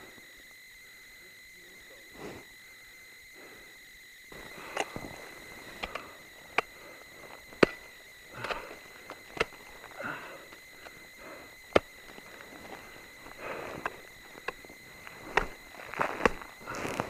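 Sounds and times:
snow crunching: 4.3 - 17.0
ice axe striking ice: 4.4 - 11.0, 11.7 - 17.0.

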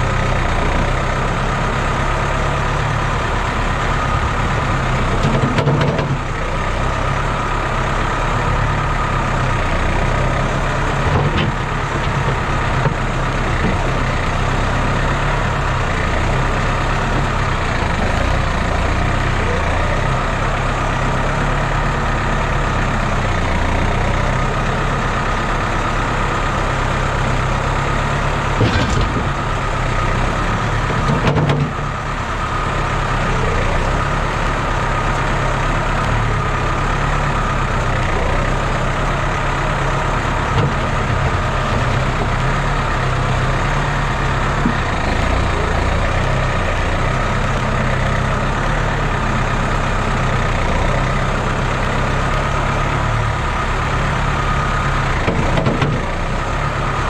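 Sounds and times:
tractor engine running: 0.0 - 57.0
loader bucket knocks: 28.5 - 29.6, 30.9 - 31.8.

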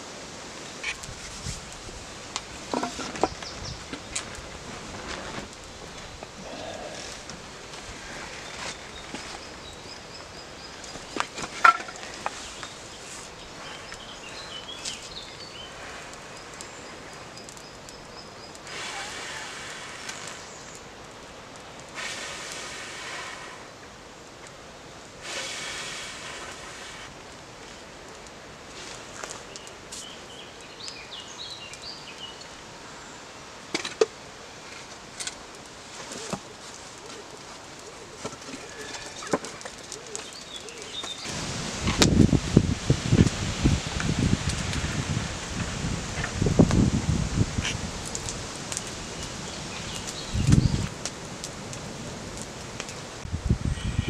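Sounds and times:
kindling snapping and crackling: 0.5 - 9.5, 10.7 - 23.7, 25.2 - 31.0, 33.7 - 53.3
songbird singing: 2.7 - 4.4, 8.0 - 19.1, 29.4 - 33.3, 36.4 - 41.5, 48.6 - 51.0, 53.6 - 54.0
person blowing on tinder: 22.0 - 23.7, 25.2 - 27.1.

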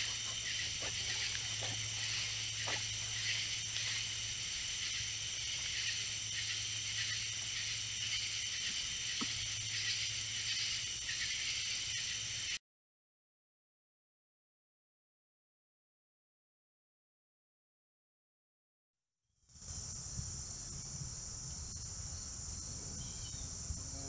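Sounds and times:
night insects chorus: 0.0 - 12.6, 19.5 - 24.0
steady low hum: 0.0 - 12.6.

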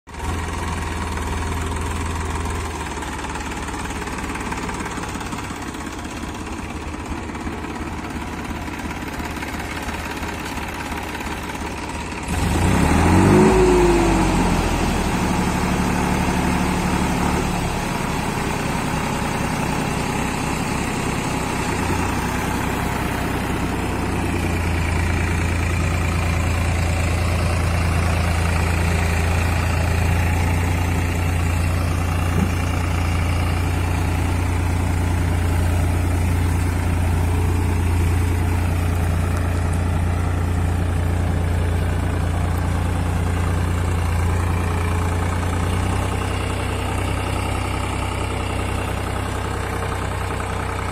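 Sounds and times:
tractor diesel engine running: 0.1 - 50.9
engine revving up: 12.3 - 17.7.

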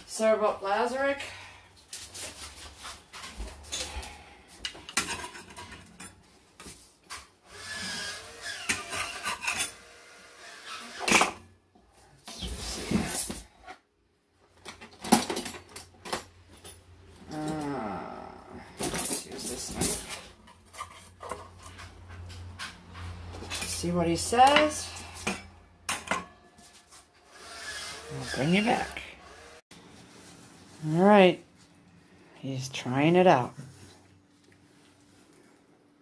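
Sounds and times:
utensils and plate clattering: 4.7 - 6.2, 8.4 - 9.9, 10.9 - 11.4, 18.8 - 26.8.

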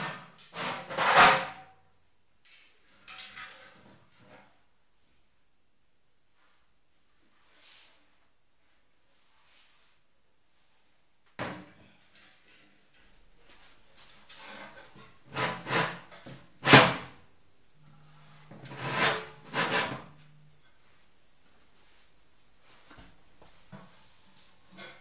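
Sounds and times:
metal scraping on metal: 14.3 - 17.1, 17.8 - 20.5.

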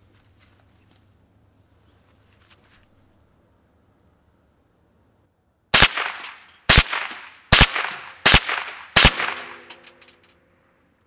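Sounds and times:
rifle shots with echo: 5.8 - 10.2.

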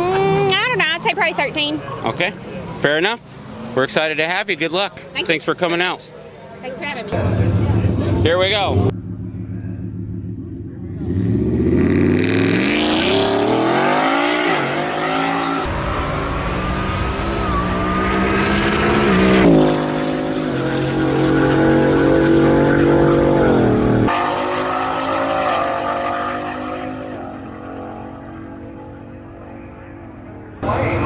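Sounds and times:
truck engine at full throttle: 7.1 - 31.0.

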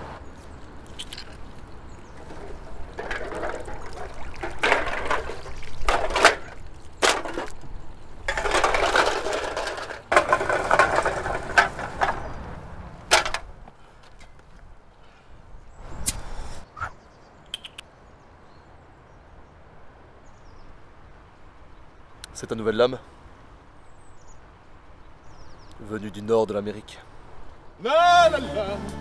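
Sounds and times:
water streaming and splashing: 0.2 - 8.4.

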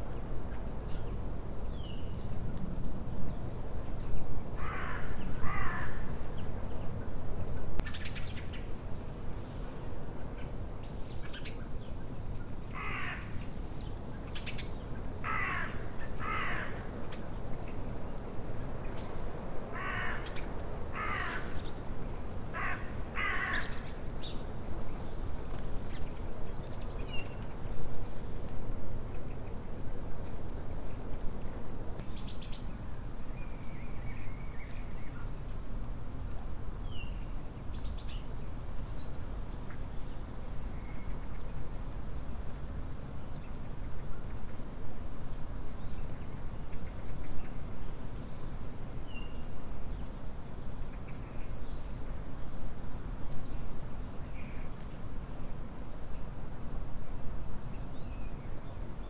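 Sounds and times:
songbirds chirping: 0.0 - 59.0
crow cawing: 4.6 - 6.0, 12.8 - 13.3, 15.2 - 16.8, 19.7 - 20.4, 21.0 - 21.6, 22.5 - 23.8.

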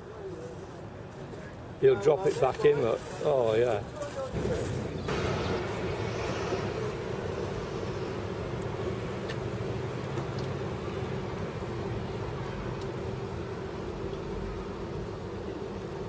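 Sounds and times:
engine droning: 4.7 - 16.0.

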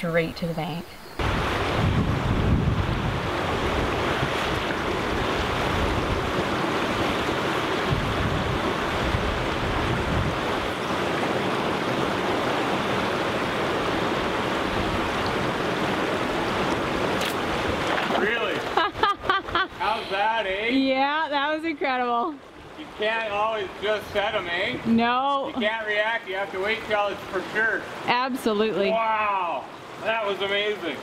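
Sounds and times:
wind rumble on microphone: 1.2 - 18.2
stream water rushing over stones: 1.2 - 18.8, 19.8 - 31.0.

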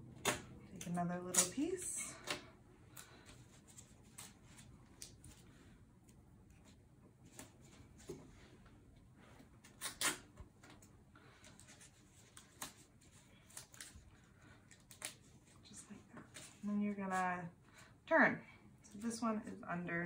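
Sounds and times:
tape ripping: 9.6 - 10.4.

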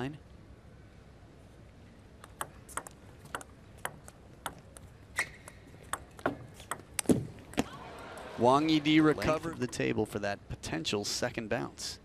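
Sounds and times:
table tennis ball ticking: 2.2 - 7.1, 9.3 - 9.9.

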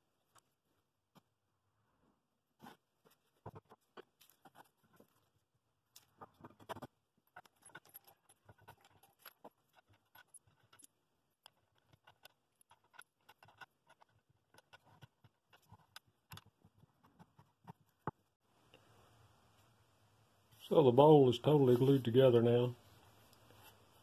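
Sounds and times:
faint clicks and taps of small parts: 5.9 - 18.8.

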